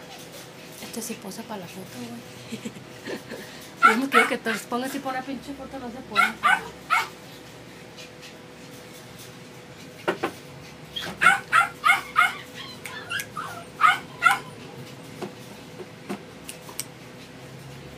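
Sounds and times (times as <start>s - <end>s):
dog whimpering and yipping: 3.8s - 4.4s, 6.1s - 7.1s, 10.9s - 14.8s.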